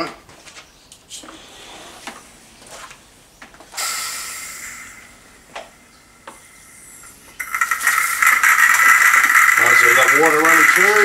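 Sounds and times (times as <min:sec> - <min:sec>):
water and air hissing from spray gun: 0:03.7 - 0:05.5.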